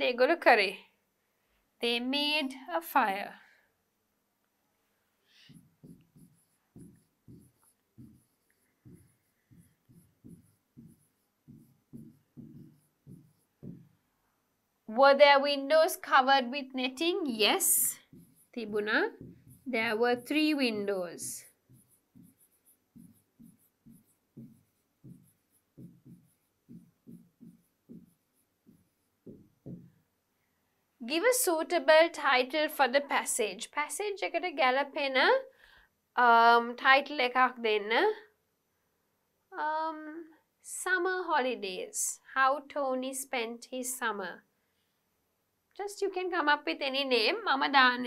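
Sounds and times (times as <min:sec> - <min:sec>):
marker writing on a board: 0:05.3 - 0:14.0, 0:17.3 - 0:30.0
pen scraping and tapping on screen: 0:05.3 - 0:14.0, 0:17.3 - 0:30.0.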